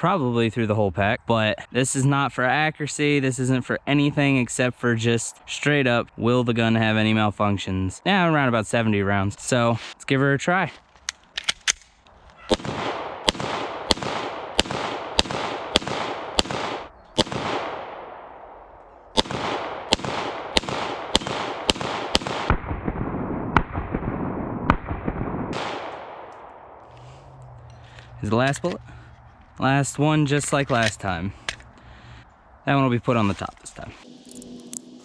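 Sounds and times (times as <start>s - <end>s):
pistol gunshots: 12.4s - 26.9s.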